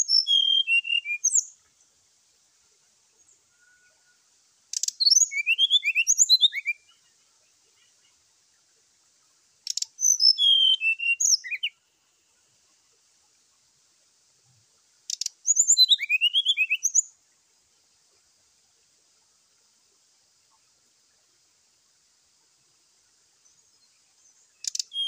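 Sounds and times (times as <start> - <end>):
bird chirping song: 0.0 - 2.0, 2.7 - 13.6, 14.5 - 18.2, 22.3 - 25.0.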